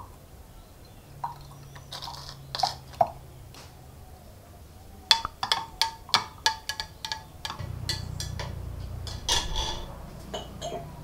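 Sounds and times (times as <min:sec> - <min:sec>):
low steady hum: 0:00.0 - 0:11.0
ringing clinks of hard object: 0:05.1 - 0:10.8.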